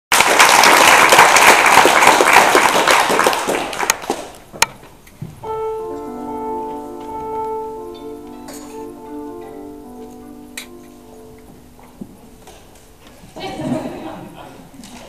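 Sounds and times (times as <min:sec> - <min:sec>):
audience applause: 0:00.1 - 0:04.5
held tuning notes: 0:05.4 - 0:13.2.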